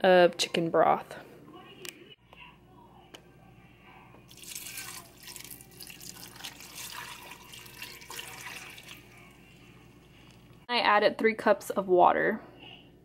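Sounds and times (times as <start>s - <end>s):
broth pouring into metal pot: 4.3s - 9.6s.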